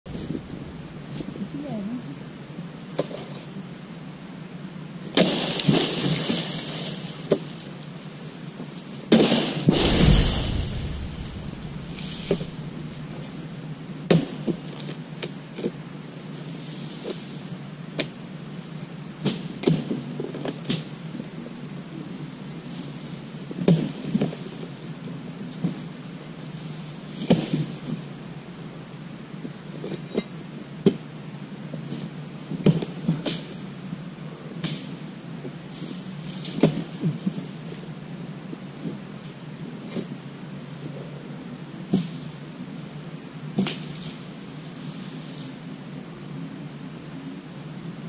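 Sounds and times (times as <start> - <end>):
frond rustling through leaves: 0.1 - 2.0, 5.4 - 8.5, 9.5 - 13.3
sharp knock: 9.7 - 13.2.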